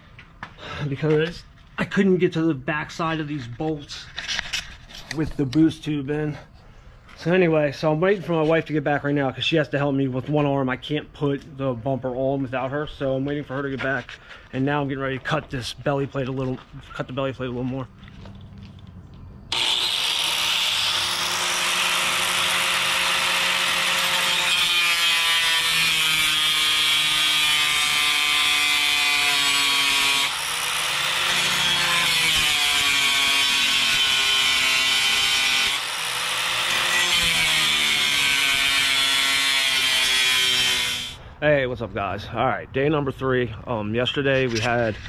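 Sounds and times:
angle grinder cutting metal: 19.5 - 41.2.

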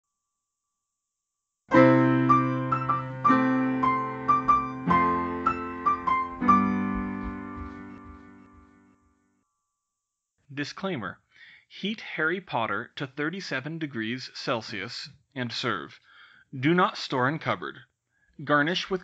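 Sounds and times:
solo piano phrase: 1.7 - 8.9.

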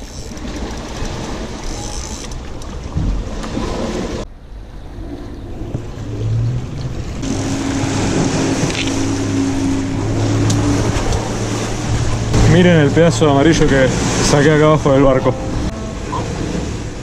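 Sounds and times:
engine hum: 0.0 - 17.0
wind and water rushing: 0.0 - 17.0.

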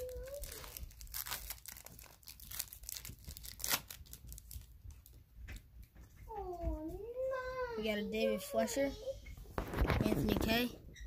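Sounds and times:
foil card pack tearing and crinkling: 0.0 - 4.7.

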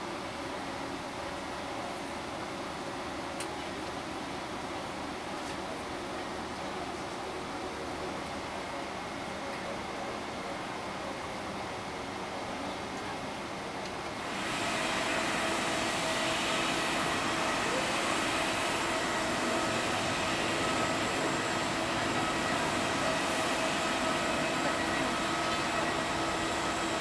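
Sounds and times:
jet turbine whine and rush: 13.9 - 27.0.

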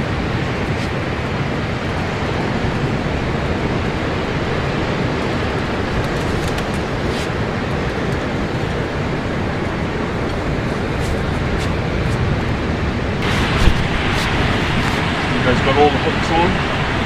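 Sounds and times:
breaking surf: 0.0 - 17.0
wind buffeting microphone: 0.0 - 17.0.

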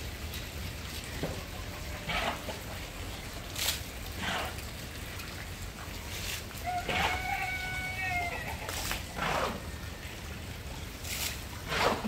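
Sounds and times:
rooster crowing: 6.6 - 8.6.

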